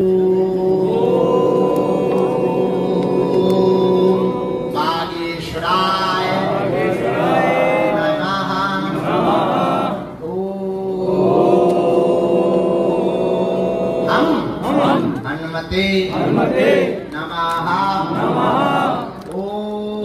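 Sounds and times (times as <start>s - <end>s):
men chanting: 0.0s - 15.3s, 16.0s - 17.1s, 18.0s - 20.0s.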